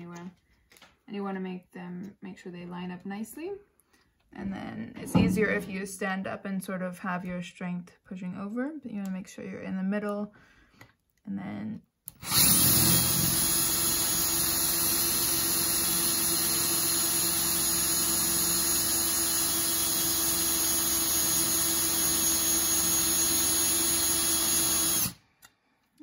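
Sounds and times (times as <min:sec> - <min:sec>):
power drill boring through metal: 0:12.2 - 0:25.2.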